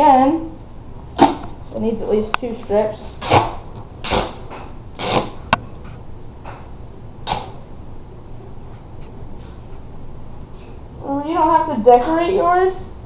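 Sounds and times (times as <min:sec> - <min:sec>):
duct tape ripping off roll: 0:05.0 - 0:05.4, 0:07.2 - 0:07.6.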